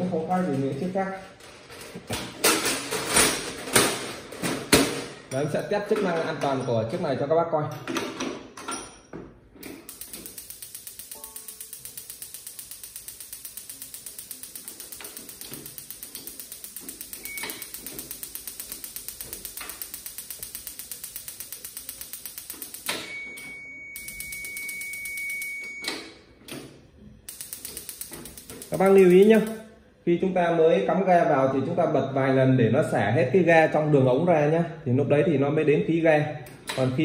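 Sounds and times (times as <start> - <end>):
gas burner igniting: 9.8 - 25.8, 27.2 - 29.7
stove igniter clicking rapidly: 9.9 - 23.1, 24.0 - 25.6, 27.3 - 29.6
steady high beep: 9.9 - 26.2, 27.3 - 29.6.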